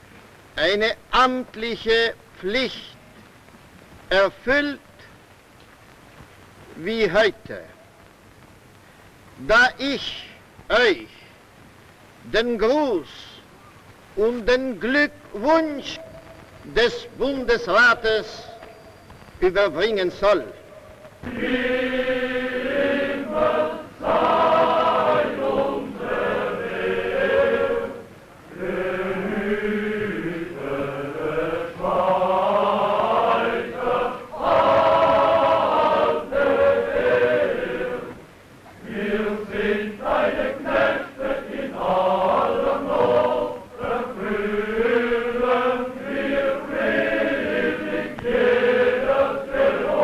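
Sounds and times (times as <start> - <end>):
men's choir singing: 19.6 - 50.0.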